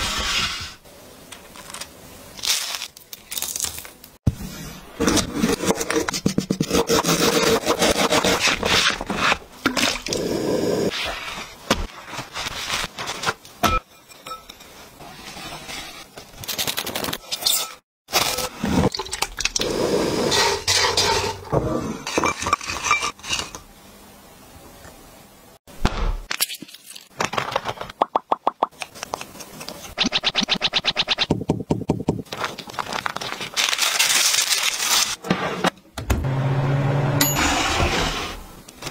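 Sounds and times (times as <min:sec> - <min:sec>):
scraping and rustling in glass bowl: 0:20.3 - 0:23.6.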